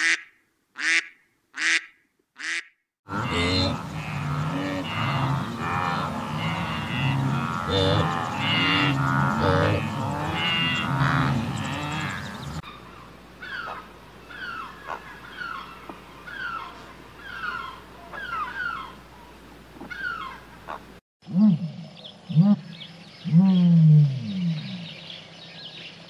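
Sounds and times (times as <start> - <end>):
lower rising and falling animal calls: 3.1 - 19.0.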